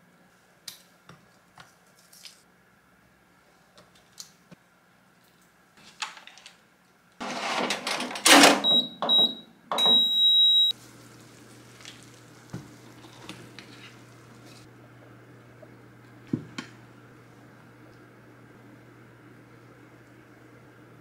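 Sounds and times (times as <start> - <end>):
oven tray and door clattering: 7.2 - 10.0
low steady hum: 8.6 - 21.0
short electronic beeps: 8.7 - 10.7.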